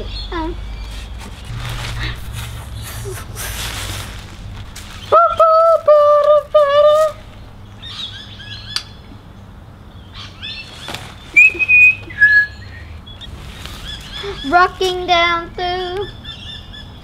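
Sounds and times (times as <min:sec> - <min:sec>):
short high whistled calls: 0:11.3 - 0:14.2.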